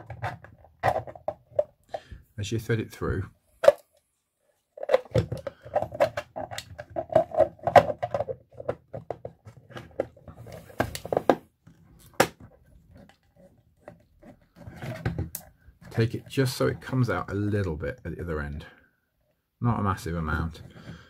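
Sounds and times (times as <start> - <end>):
plastic box rubbing and clicking: 0.0 - 2.0, 4.8 - 17.3.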